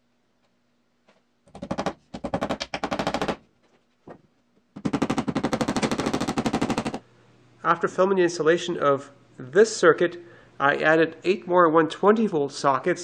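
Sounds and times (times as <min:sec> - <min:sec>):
power tool hammering: 0:04.8 - 0:07.0.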